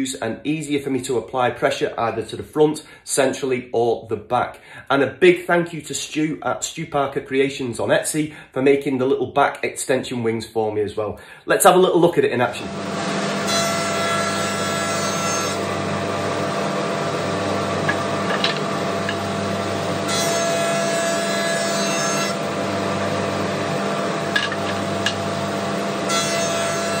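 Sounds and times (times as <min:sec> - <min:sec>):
planer cutting wood: 0:12.5 - 0:27.0
planer machine hum: 0:12.5 - 0:27.0.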